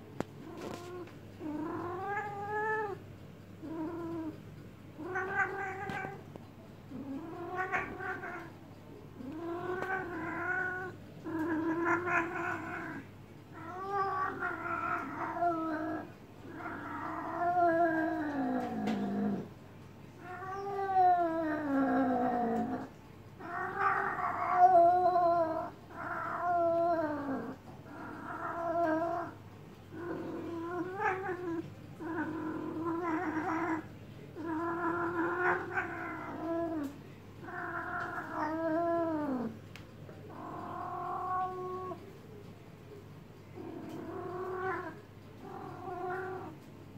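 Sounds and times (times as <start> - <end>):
cat yowling: 9.2 - 19.4, 20.2 - 39.5.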